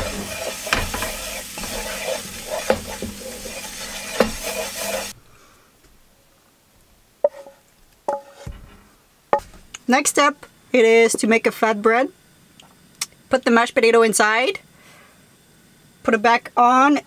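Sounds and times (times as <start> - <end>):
sauce sizzling in frying pan: 0.0 - 5.2
wooden spatula scraping pan: 0.0 - 5.2, 7.2 - 9.5
spatula knocking against pan: 4.1 - 4.6.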